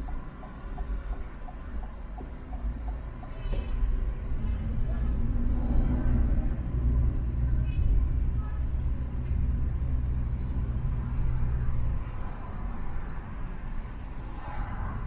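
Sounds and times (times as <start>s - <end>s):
vehicle road rumble: 0.0s - 15.0s.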